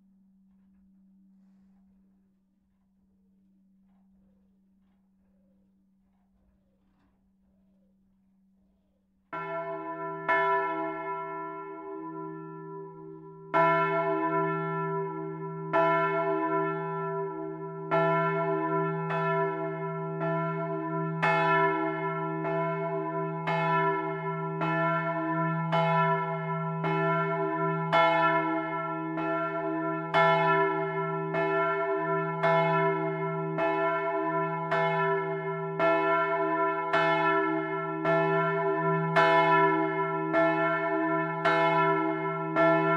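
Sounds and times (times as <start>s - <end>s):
large church bell ringing: 9.3s - 42.9s.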